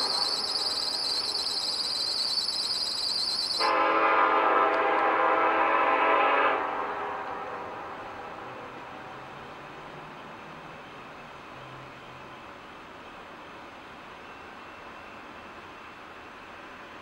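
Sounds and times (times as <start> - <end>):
high steady hiss: 0.0 - 5.2
locomotive air horn blast: 3.6 - 8.5.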